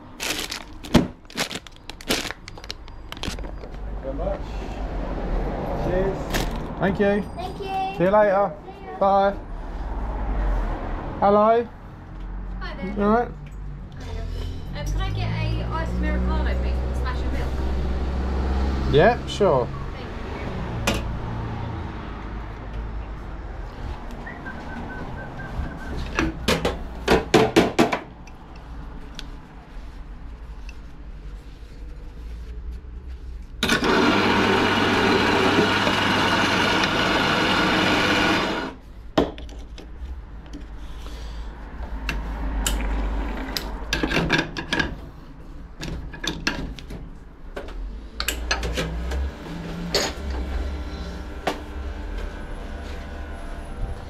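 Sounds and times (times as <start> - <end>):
coffee grinder running: 33.6 - 38.8, 48.6 - 53.7.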